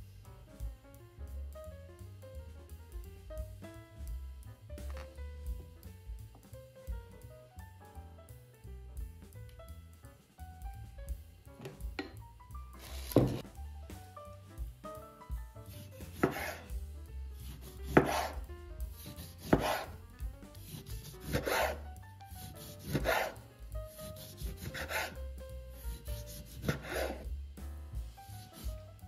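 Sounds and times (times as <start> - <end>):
knife slicing onto cutting board: 12.8 - 13.4, 16.0 - 16.6, 17.5 - 18.4, 19.1 - 20.0, 20.6 - 21.8, 22.5 - 23.4.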